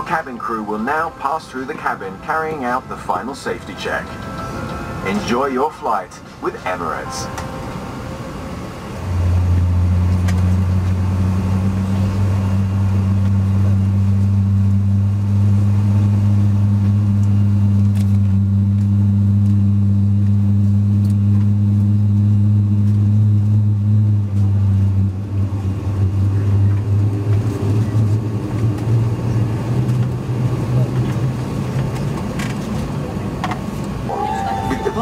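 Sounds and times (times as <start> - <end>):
higher hum: 0.0 - 11.8, 34.0 - 35.0
deep drone inside airplane cabin: 0.0 - 35.0.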